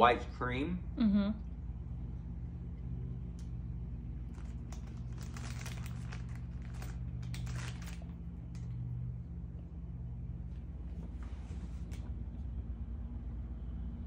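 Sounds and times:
steady low hum: 0.0s - 14.0s
plastic wrapper crinkling: 4.3s - 8.6s.

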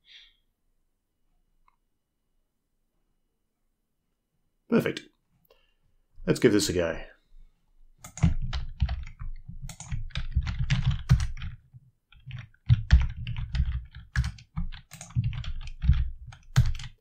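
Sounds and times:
typing on computer keyboard: 8.0s - 17.0s.

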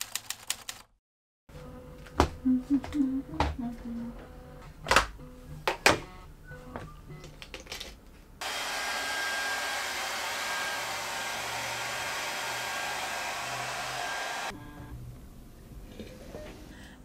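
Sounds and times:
hair dryer blowing: 8.4s - 14.5s.

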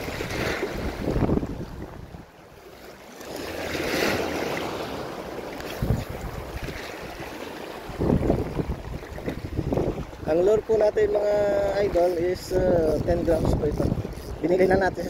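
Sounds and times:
waves washing against rocks: 0.0s - 2.2s, 2.8s - 15.0s
wind rumble on microphone: 0.0s - 2.3s, 5.6s - 15.0s
microphone handling noise: 5.7s - 6.4s.

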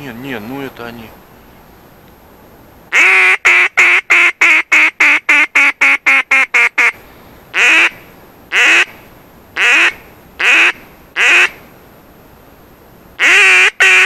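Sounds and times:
duck call quacks: 2.9s - 7.0s, 7.6s - 9.0s, 9.6s - 11.6s, 13.2s - 14.0s.

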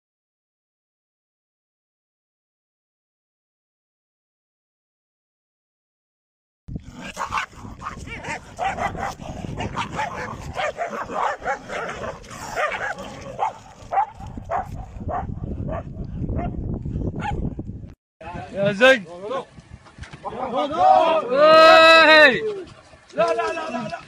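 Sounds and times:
dog barking rapidly: 7.0s - 16.6s, 17.2s - 17.4s.

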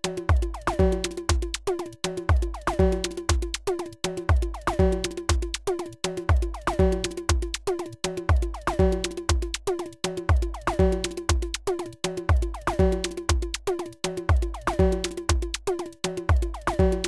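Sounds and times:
electronic drum pattern: 0.0s - 17.0s.

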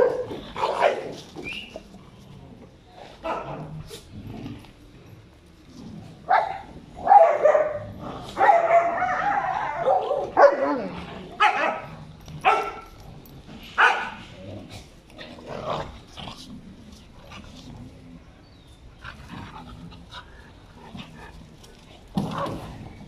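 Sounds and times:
dogs barking: 0.0s - 1.2s, 6.3s - 13.0s, 13.8s - 14.2s.

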